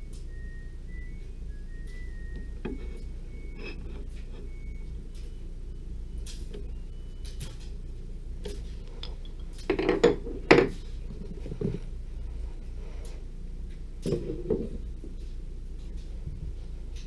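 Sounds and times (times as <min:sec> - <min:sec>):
steady low hum: 0:00.0 - 0:17.0
metal clunks and clinks: 0:09.0 - 0:10.8.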